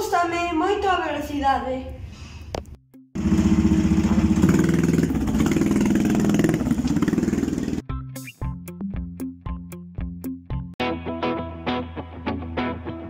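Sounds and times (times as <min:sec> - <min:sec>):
go-kart engine running: 0:03.2 - 0:07.8.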